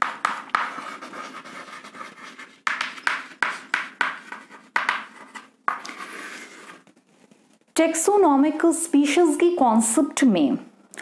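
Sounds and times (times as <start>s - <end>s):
chalk scratching on chalkboard: 0.0s - 6.8s.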